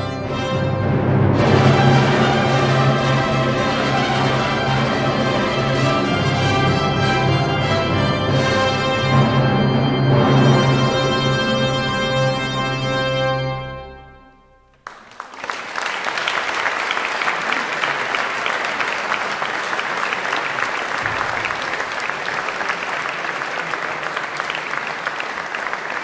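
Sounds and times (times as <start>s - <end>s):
brass and organ final chord: 0.0s - 14.6s
audience applauding: 14.8s - 26.0s.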